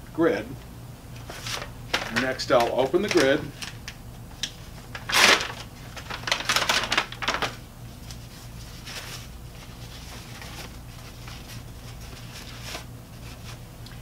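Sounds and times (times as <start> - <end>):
wrapper crinkling: 1.2 - 4.0, 4.6 - 13.6
packaging pouch ripped open: 5.0 - 7.6.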